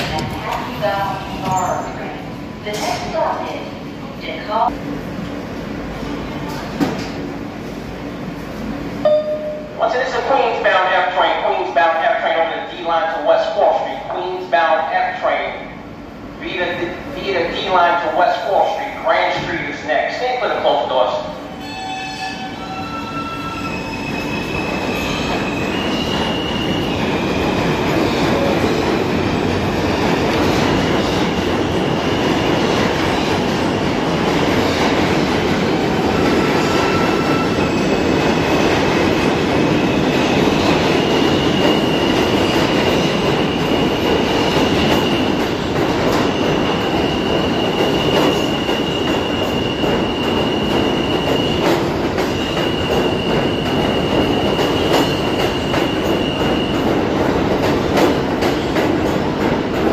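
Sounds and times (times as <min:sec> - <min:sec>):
train wheels rumbling on rails: 0:23.0 - 0:59.9.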